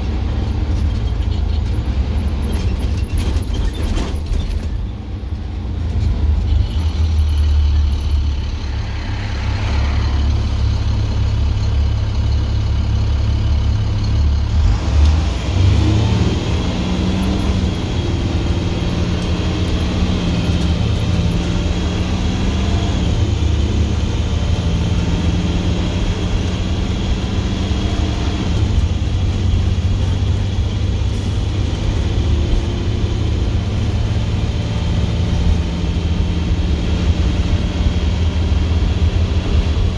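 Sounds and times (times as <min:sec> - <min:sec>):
diesel engine exhaust rumble: 0:00.0 - 0:39.9.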